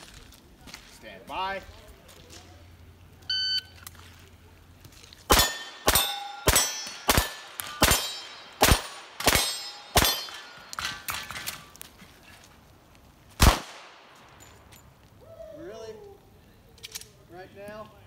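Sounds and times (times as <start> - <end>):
pistol shots: 5.3 - 11.6, 13.4 - 14.4
steel target clanging: 5.3 - 11.7.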